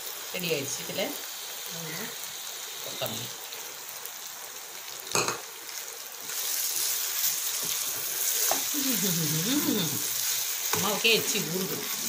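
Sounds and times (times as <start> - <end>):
chicken sizzling in a frying pan: 0.0 - 12.0.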